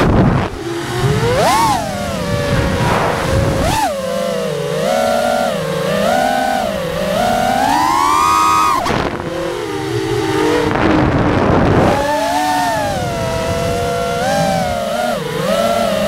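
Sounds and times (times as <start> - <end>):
rough rushing noise: 0.0 - 4.5, 8.8 - 13.5
drone motors whining: 0.0 - 16.0.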